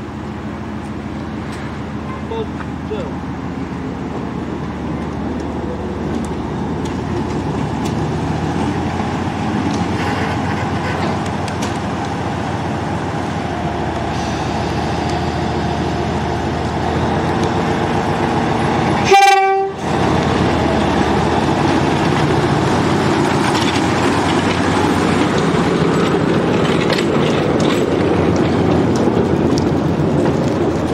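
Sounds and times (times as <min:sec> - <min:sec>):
diesel locomotive engine: 0:00.0 - 0:30.9
locomotive horn toot: 0:09.9 - 0:11.2, 0:19.0 - 0:19.9.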